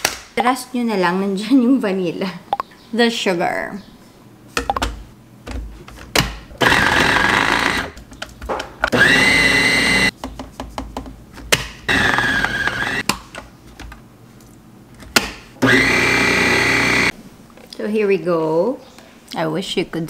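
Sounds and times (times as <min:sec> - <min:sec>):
food processor motor whine: 0:06.6 - 0:08.0, 0:08.9 - 0:10.1, 0:11.9 - 0:13.0, 0:15.6 - 0:17.1.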